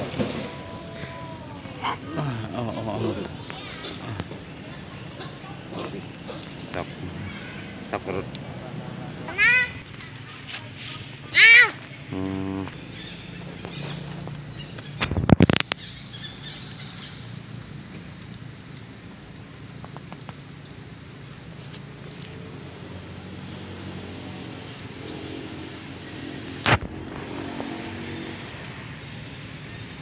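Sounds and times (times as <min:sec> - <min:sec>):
high insect drone: 0:00.0 - 0:30.0.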